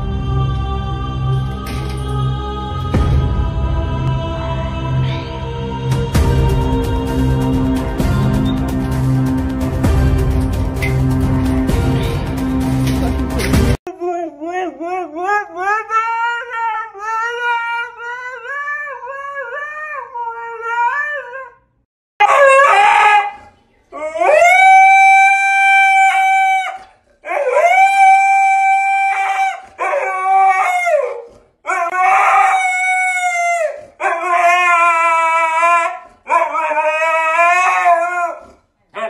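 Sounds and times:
dog howling: 0:14.6 - 0:21.6, 0:22.2 - 0:39.0.

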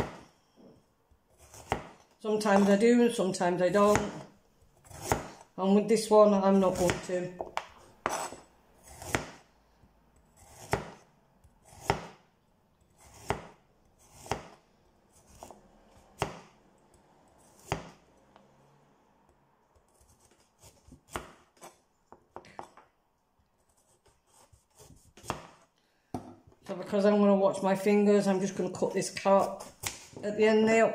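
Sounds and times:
knife slicing carrot on chopping board: 0:01.3 - 0:02.7, 0:04.8 - 0:05.4, 0:06.6 - 0:09.4, 0:10.4 - 0:12.2, 0:12.9 - 0:15.6, 0:16.2 - 0:16.5, 0:17.4 - 0:18.0, 0:19.8 - 0:21.8, 0:23.7 - 0:25.7.

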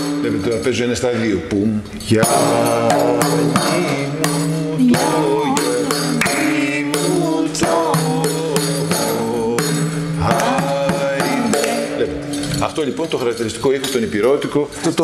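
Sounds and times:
person singing: 0:01.6 - 0:12.2
frame drum with jingles: 0:02.0 - 0:15.0.

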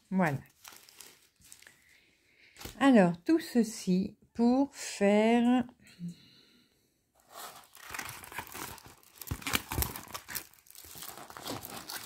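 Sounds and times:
plastic covering crinkling: 0:00.0 - 0:02.8, 0:07.2 - 0:12.0.

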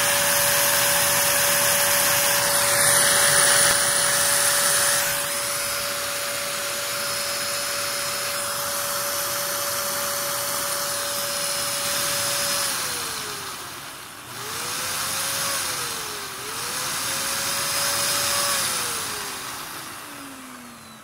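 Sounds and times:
air rushing through hose: 0:00.0 - 0:13.8
vacuum motor whining: 0:00.0 - 0:21.0.

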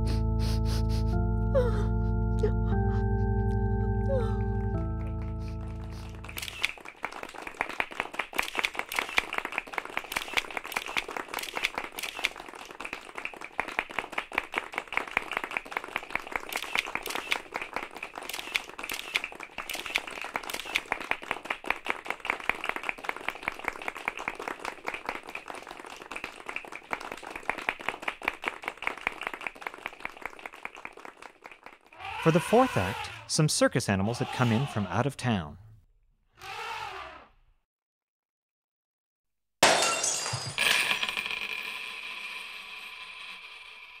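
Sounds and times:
crowd clapping: 0:04.2 - 0:32.9.

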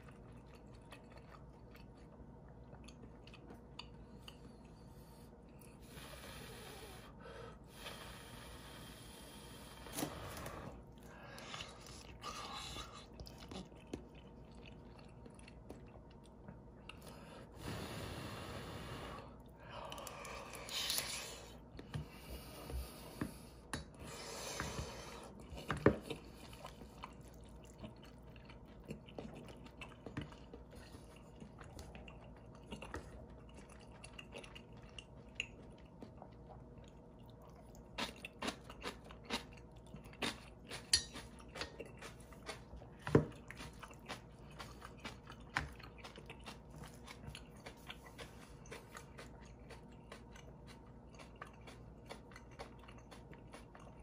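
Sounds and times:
chewing with wet mouth clicks: 0:00.0 - 0:04.8, 0:10.8 - 0:17.2, 0:25.2 - 0:54.0.

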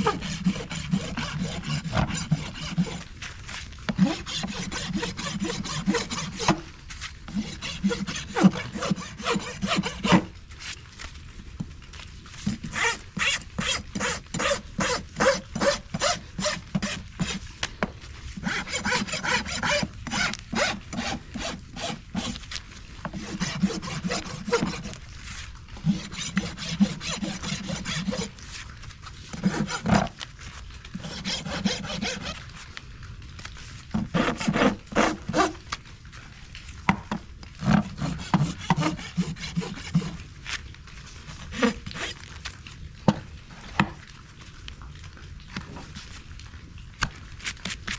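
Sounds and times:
hoof rasp filing hoof: 0:00.0 - 0:03.1, 0:03.9 - 0:06.7, 0:07.3 - 0:10.3, 0:12.4 - 0:17.4, 0:18.4 - 0:22.4, 0:23.1 - 0:25.0, 0:25.8 - 0:28.4, 0:29.3 - 0:30.2, 0:31.0 - 0:32.4, 0:34.0 - 0:35.6, 0:37.6 - 0:40.2, 0:41.4 - 0:42.2.

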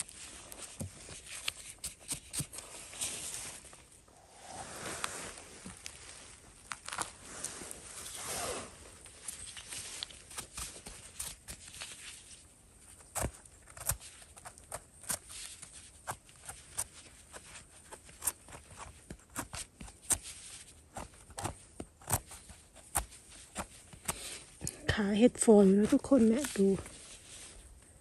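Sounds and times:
dry leaves rustling underfoot: 0:02.6 - 0:13.0.

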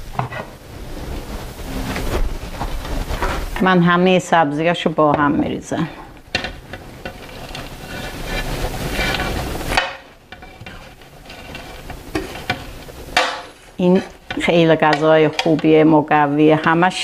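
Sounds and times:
herbs rustling: 0:05.7 - 0:16.2
spoon scraping a plate: 0:06.4 - 0:15.7.

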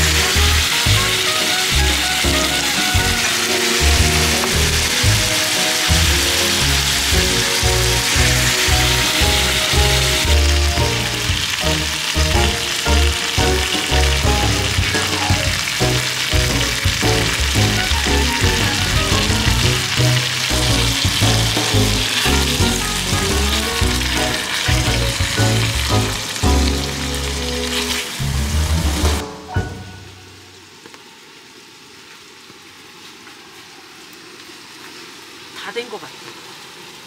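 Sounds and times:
music with steady bass beat: 0:00.0 - 0:27.6
food sizzling in skillet: 0:00.0 - 0:31.6.

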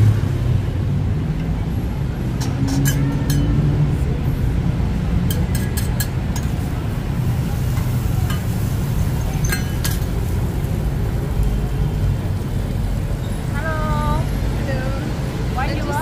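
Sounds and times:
street traffic rumble: 0:00.0 - 0:16.0
metal spatula clinking on pan: 0:02.7 - 0:03.6, 0:09.4 - 0:10.1.

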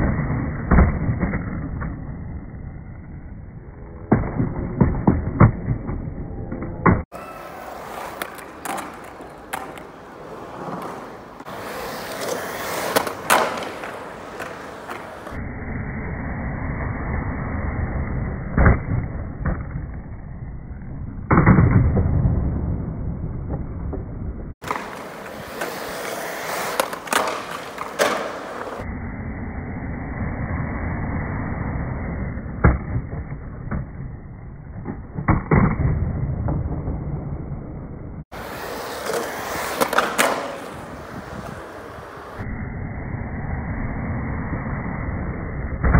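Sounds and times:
skateboard wheels rolling on concrete: 0:00.0 - 0:15.4, 0:16.4 - 0:42.5
skateboard clacking on concrete: 0:07.1 - 0:15.4, 0:24.6 - 0:28.8, 0:38.4 - 0:41.7.

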